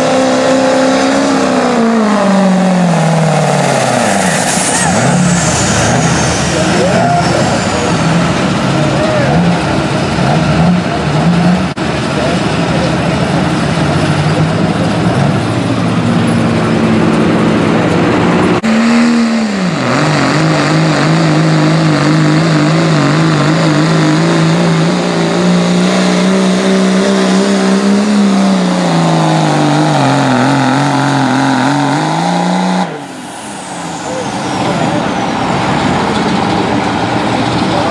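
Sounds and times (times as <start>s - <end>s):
diesel truck engines under load: 0.0s - 37.9s.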